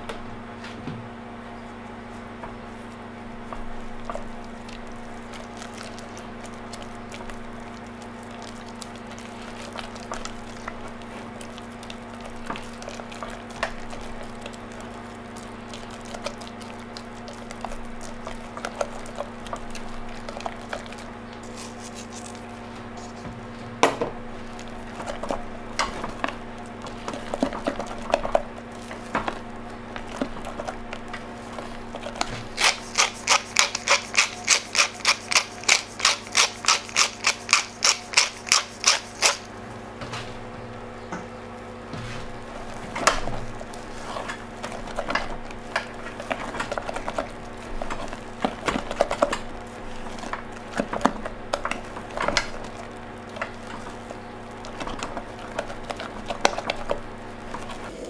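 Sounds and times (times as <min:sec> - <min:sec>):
wet squelching of mashing: 0:02.8 - 0:23.4, 0:24.3 - 0:39.5, 0:42.2 - 0:58.0.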